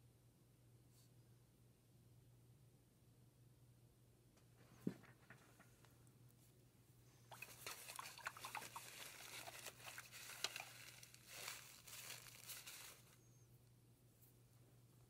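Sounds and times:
rustling and crinkling: 4.5s - 13.5s
small crackles and clicks: 7.3s - 13.2s.

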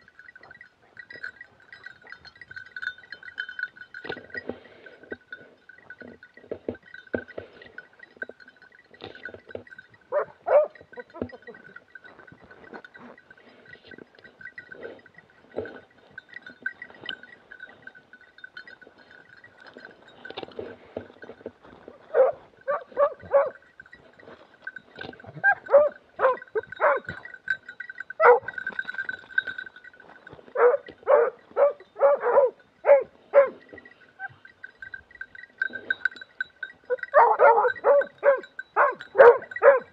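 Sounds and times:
dogs barking: 10.1s - 10.9s, 22.1s - 23.6s, 25.4s - 27.2s, 28.2s - 28.6s, 30.6s - 33.6s, 36.9s - 39.9s
footsteps: 19.0s - 27.3s.

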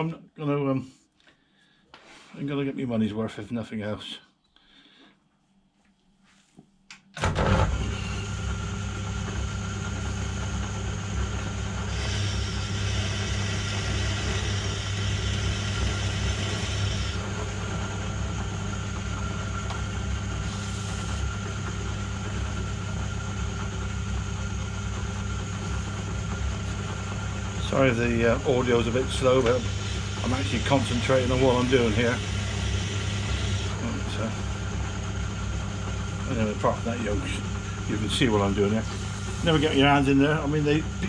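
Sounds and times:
lathe motor humming: 7.7s - 41.0s
drill cutting steel hiss: 11.7s - 18.1s, 20.2s - 21.4s, 27.8s - 34.2s, 38.4s - 40.8s.

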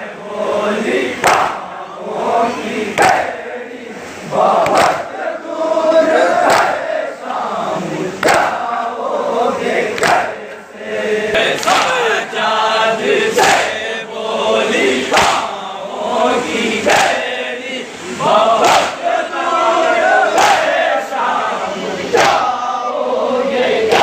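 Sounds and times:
men chanting in unison: 0.0s - 24.0s
hands slapping chests: 1.2s - 1.6s, 4.6s - 5.1s, 6.4s - 6.8s, 8.2s - 8.6s, 10.0s - 10.2s, 11.5s - 12.0s, 15.1s - 15.5s.

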